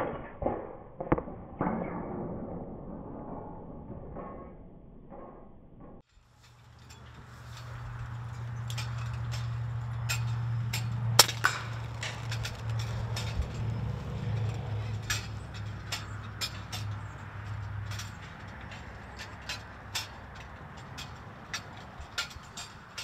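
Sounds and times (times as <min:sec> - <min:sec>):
pellet striking metal roof: 0:00.0 - 0:04.5, 0:08.6 - 0:18.1.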